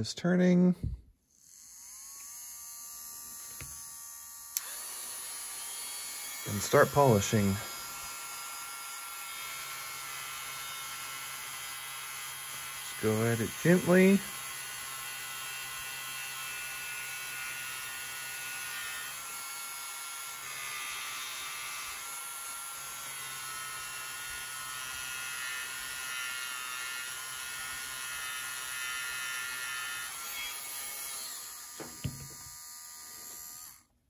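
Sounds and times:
small electric motor whining: 1.2s - 34.0s
short knock: 31.8s - 32.4s.

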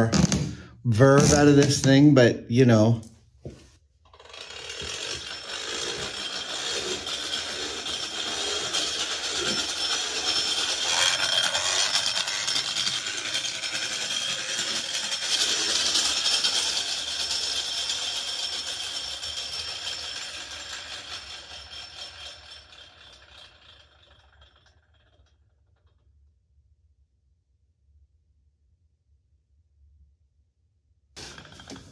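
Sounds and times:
flywheel and gears whirring: 4.1s - 25.9s, 31.2s - 31.9s.

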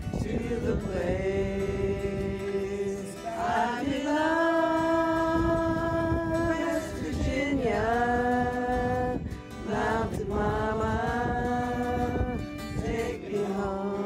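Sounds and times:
person singing: 0.0s - 14.0s
strummed acoustic guitar: 0.0s - 14.0s
fiddle: 9.2s - 14.0s.

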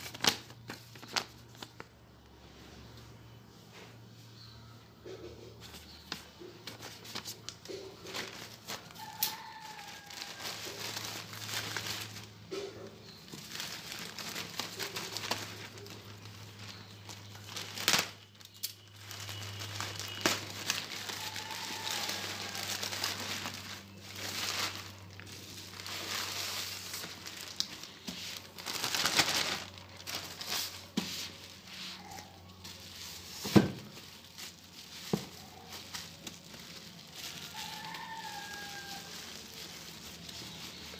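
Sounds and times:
plastic bag and bubble wrap rustling: 0.0s - 2.0s, 5.4s - 40.9s.

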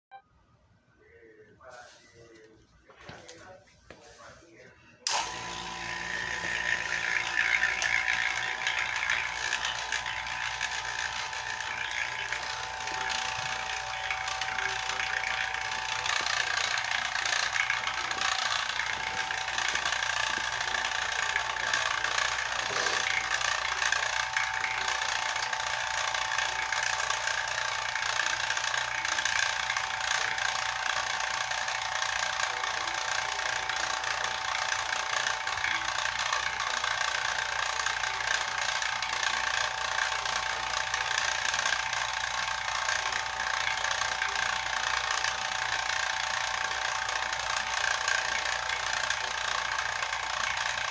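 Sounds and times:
electric vacuum pump droning: 5.0s - 50.9s.

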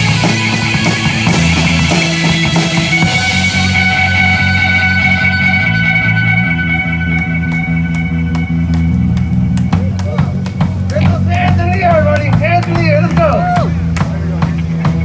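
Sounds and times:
live rock band playing: 0.0s - 15.0s.

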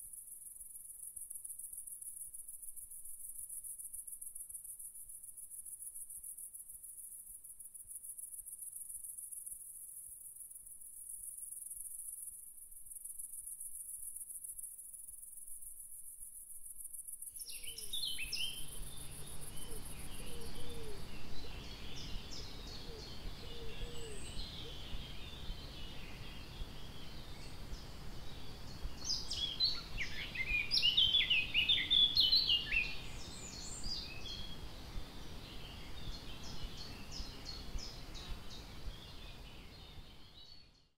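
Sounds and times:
cricket trilling: 0.0s - 21.1s
small birds chirping: 4.4s - 41.0s.

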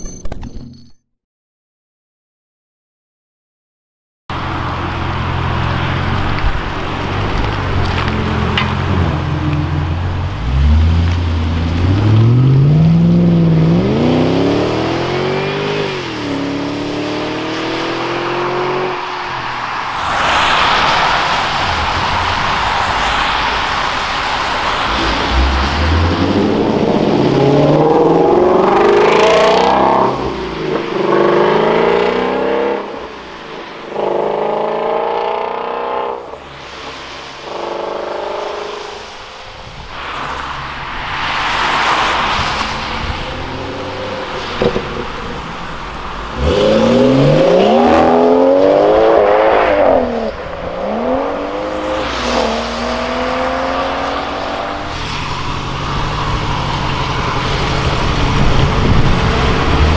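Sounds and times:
sports cars accelerating: 4.4s - 59.9s
car engine revving through upshifts: 10.4s - 19.2s, 24.6s - 33.1s, 33.9s - 39.2s, 46.3s - 59.9s
tyre hiss on wet tarmac: 19.6s - 26.1s.

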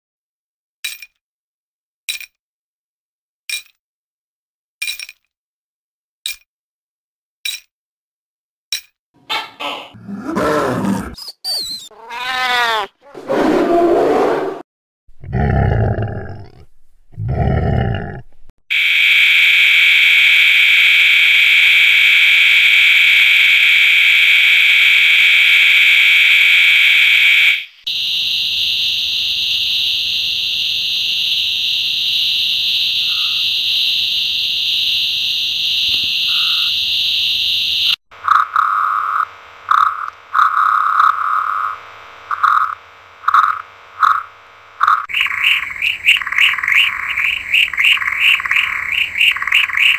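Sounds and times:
tree frogs trilling: 11.5s - 12.9s, 33.0s - 33.4s, 36.3s - 36.7s, 38.2s - 49.9s
short low frog calls: 44.8s - 49.9s.

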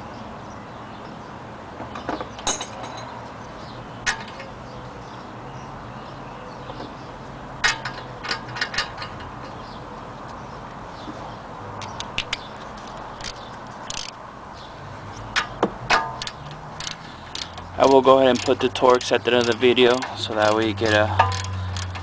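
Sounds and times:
metallic clicks of hand tools: 11.8s - 14.2s, 15.3s - 22.0s.

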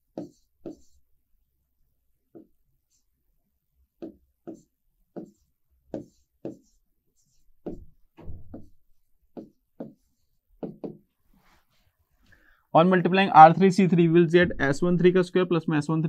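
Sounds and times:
stylus tapping on screen: 4.0s - 11.1s.

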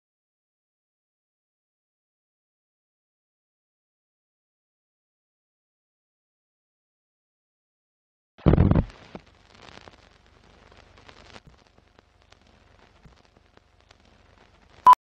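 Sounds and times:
old film crackle with pops: 8.4s - 14.9s.

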